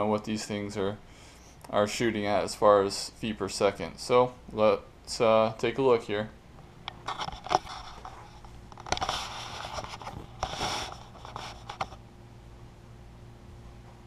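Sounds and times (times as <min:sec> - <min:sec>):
faint room hum: 0:00.0 - 0:14.0
scraping and rustling: 0:06.9 - 0:12.0.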